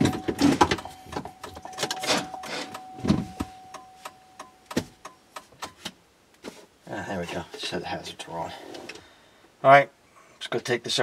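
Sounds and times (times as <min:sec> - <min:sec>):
plastic rustling and clunks: 0:00.0 - 0:03.5
heavy thud: 0:00.0 - 0:03.6
thin steady tone: 0:00.0 - 0:05.2.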